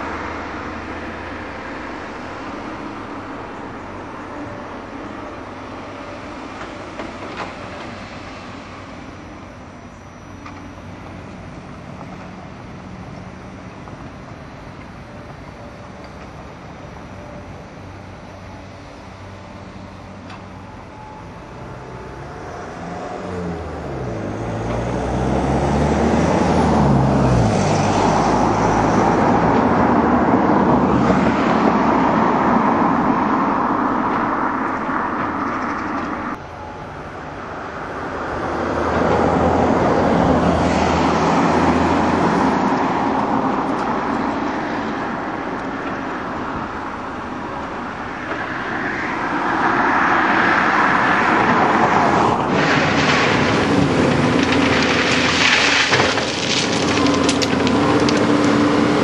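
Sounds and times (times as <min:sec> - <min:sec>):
loud mechanical noise: 0:26.1 - 0:59.0
excavator diesel engine revving: 0:49.4 - 0:59.0.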